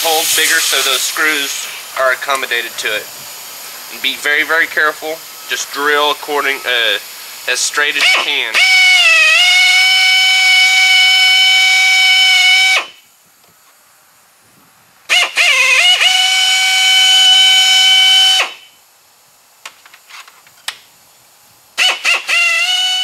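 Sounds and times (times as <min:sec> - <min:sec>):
air drill whining: 0:04.3 - 0:13.0, 0:15.1 - 0:18.7, 0:21.8 - 0:23.0.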